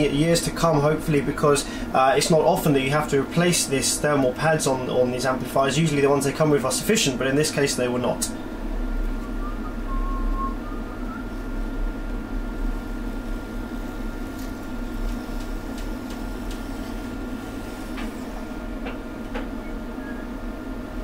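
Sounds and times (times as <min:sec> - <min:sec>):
low electrical hum: 0:00.0 - 0:21.0
thin whine: 0:07.8 - 0:15.8.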